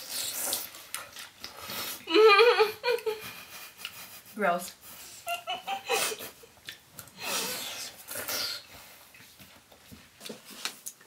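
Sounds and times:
people slurping and chewing: 0:00.0 - 0:02.3, 0:02.9 - 0:05.2, 0:06.0 - 0:11.0.

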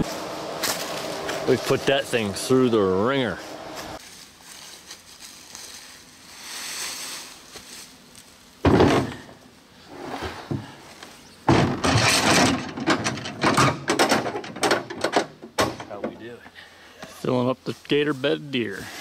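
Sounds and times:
carcass dragged over dry leaves: 0:00.0 - 0:08.4
loud thump into vehicle bed: 0:08.6 - 0:09.4, 0:11.5 - 0:15.9
thuds and knocks: 0:08.6 - 0:09.4, 0:11.5 - 0:16.1.

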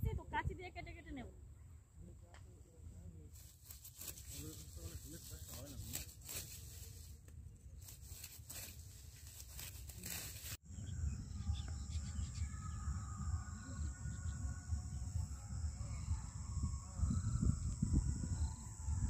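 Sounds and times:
wind rumbling on microphone: 0:07.7 - 0:19.0
high insect drone: 0:07.9 - 0:19.0.

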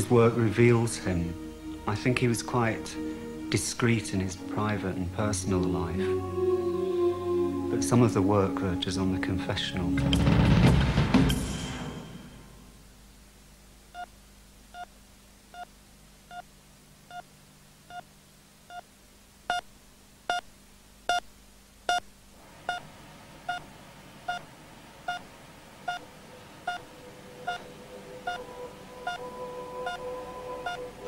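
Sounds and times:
steady higher tone: 0:00.0 - 0:10.2, 0:26.2 - 0:31.0
cardiac monitor beeping: 0:21.9 - 0:22.1, 0:23.5 - 0:23.7, 0:24.3 - 0:24.5, 0:25.9 - 0:30.9.

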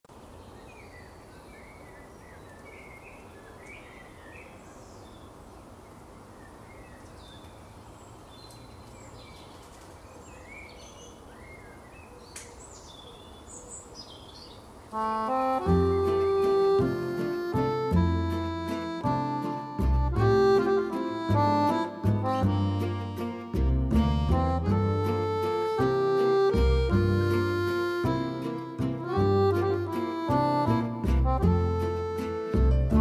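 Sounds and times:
small birds chirping: 0:00.1 - 0:23.6
outdoor background hiss: 0:00.1 - 0:33.0.

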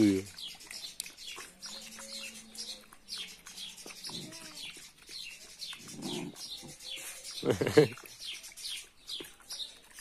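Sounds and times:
puppies lapping from a bowl: 0:00.0 - 0:10.0
small birds chirping: 0:00.0 - 0:10.0.

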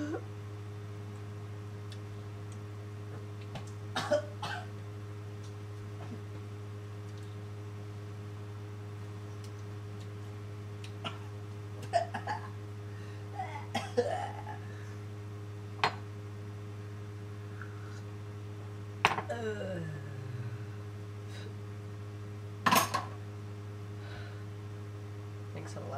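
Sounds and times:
low electrical hum: 0:00.0 - 0:25.9
man coughing: 0:04.0 - 0:04.7, 0:11.9 - 0:12.5, 0:13.7 - 0:14.6.

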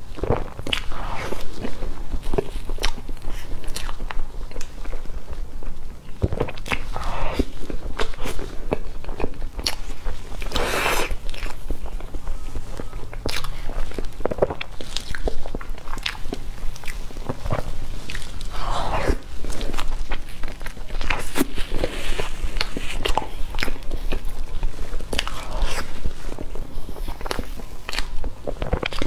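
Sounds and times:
chewing and swallowing: 0:00.1 - 0:29.0
breathy noisy sound: 0:00.2 - 0:02.0, 0:06.4 - 0:08.6, 0:10.4 - 0:11.4, 0:16.2 - 0:27.9.

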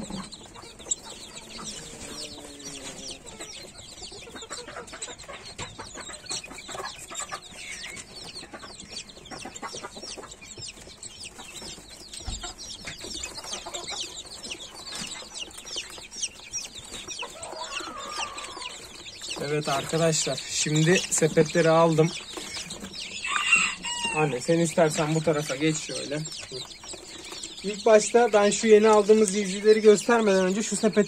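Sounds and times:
chicks peeping: 0:00.0 - 0:31.0.

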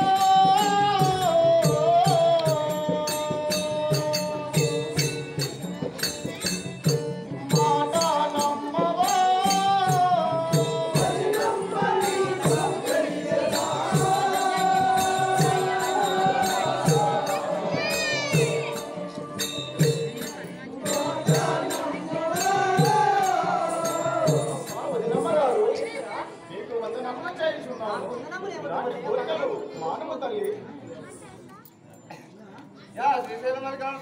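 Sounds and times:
steady drum beat: 0:00.0 - 0:25.4.

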